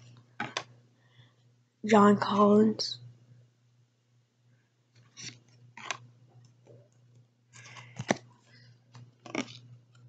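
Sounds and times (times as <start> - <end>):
trading cards rustling: 7.6 - 8.2.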